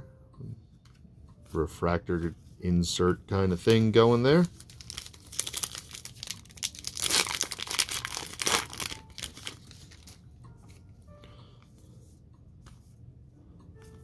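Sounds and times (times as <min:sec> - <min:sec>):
foil wrapper tearing and crinkling: 0:04.4 - 0:10.1.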